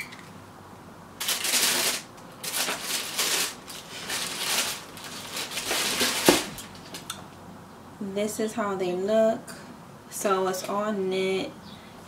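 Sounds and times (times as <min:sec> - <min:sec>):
tissue paper rustling: 0:01.2 - 0:07.0.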